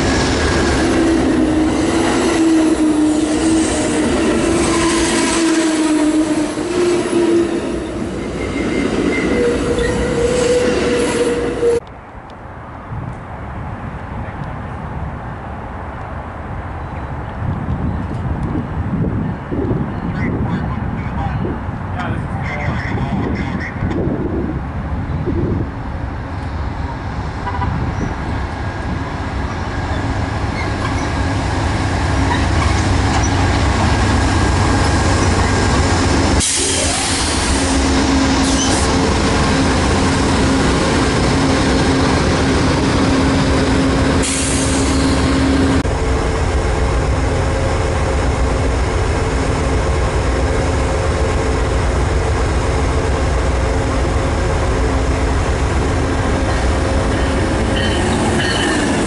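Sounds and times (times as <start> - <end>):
train wheels rolling on rails: 23.9 - 59.0.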